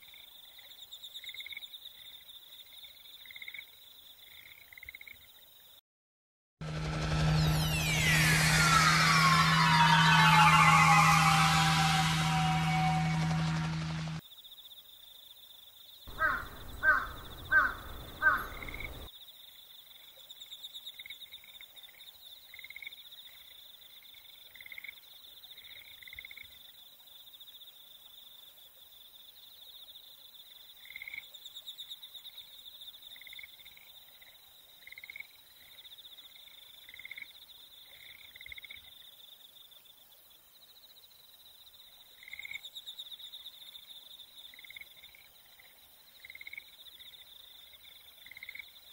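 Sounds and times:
pulsing insect drone: 6.6 - 14.2, 16.1 - 19.1
loud calls: 7.6 - 14.2, 16.1 - 19.1
bird calls: 16.1 - 19.1.

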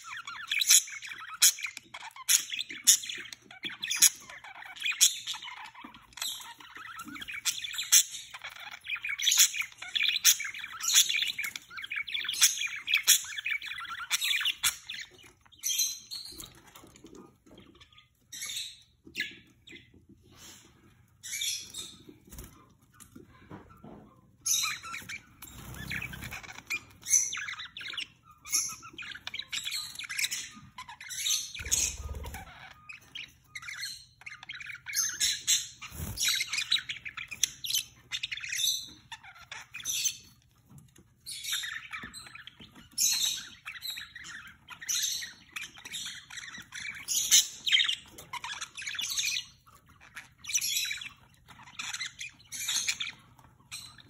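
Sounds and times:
budgerigars chattering: 0.0 - 16.9, 24.4 - 40.3, 41.3 - 54.0.

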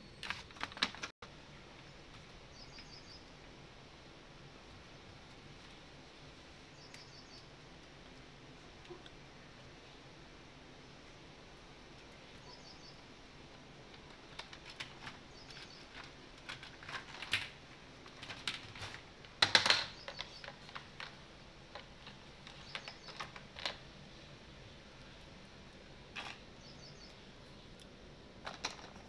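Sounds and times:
plastic toys clattering: 13.8 - 24.1, 26.1 - 26.5, 28.4 - 29.0.

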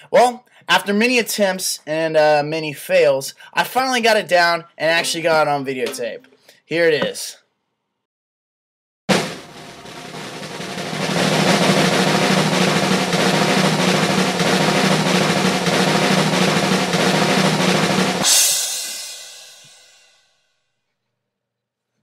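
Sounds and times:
snare drum roll: 9.1 - 20.0
cymbal crash ringing: 9.1 - 20.5.

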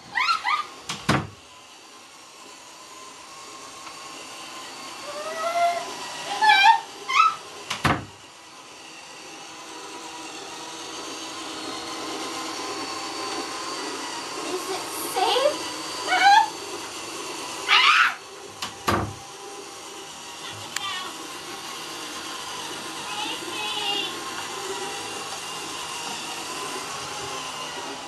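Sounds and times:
robot vacuum whirring: 0.0 - 28.0
person squealing and whimpering: 0.1 - 0.8, 5.0 - 7.4, 17.7 - 18.2.

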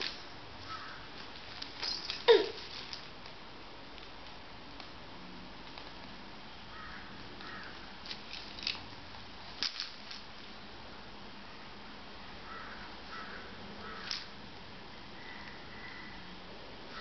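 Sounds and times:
wicker basket creaking: 0.0 - 4.9, 6.8 - 10.4.

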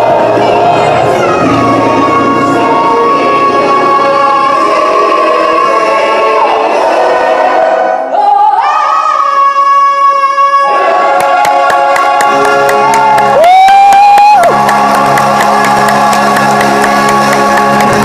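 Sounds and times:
orchestra playing: 0.0 - 7.9, 14.4 - 18.0.

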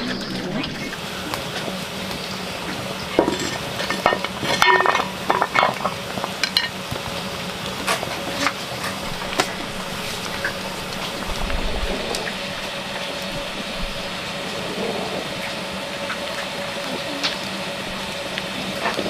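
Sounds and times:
steady low hum: 0.0 - 19.0
metal pot lid clanking: 3.2 - 5.9.

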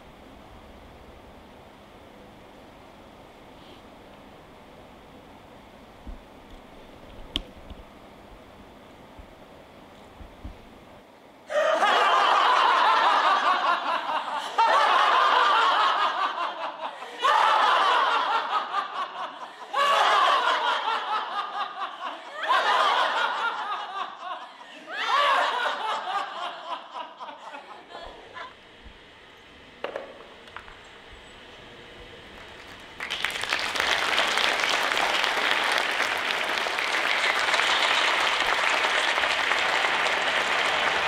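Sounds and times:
group of people laughing: 11.5 - 28.6.

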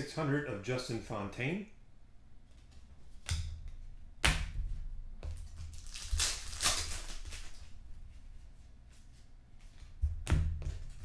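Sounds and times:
foil wrapper crinkling: 5.4 - 7.8.

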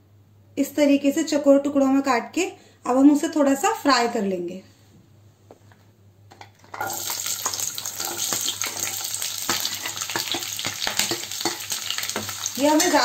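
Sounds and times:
onions sizzling in hot oil: 6.8 - 13.0.

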